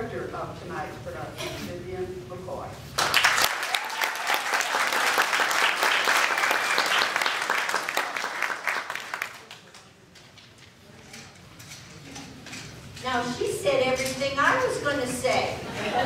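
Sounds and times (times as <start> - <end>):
audience applauding: 3.0 - 9.9.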